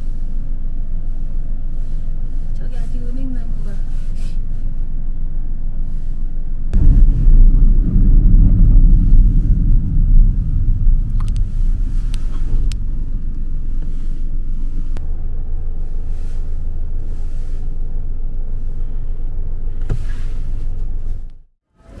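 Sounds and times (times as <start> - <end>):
loud low rumble: 6.8 - 17.2.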